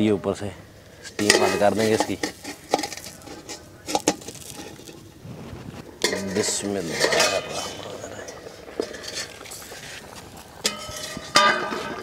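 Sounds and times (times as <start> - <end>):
metal lid clinking and scraping: 1.0 - 5.1, 6.0 - 9.8, 10.6 - 12.0.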